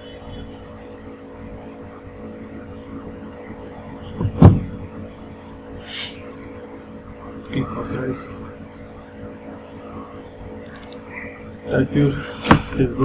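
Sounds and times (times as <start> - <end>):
low electrical hum: 0.0 - 13.0
loud thump: 4.2 - 4.8, 12.4 - 12.8
brief hiss: 5.8 - 6.2.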